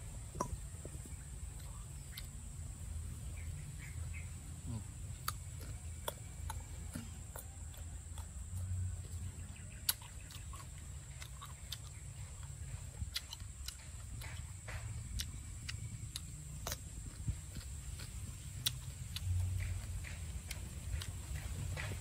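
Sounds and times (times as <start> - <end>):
chewing and crunching fruit: 0.0 - 22.0
low steady rumble: 0.0 - 22.0.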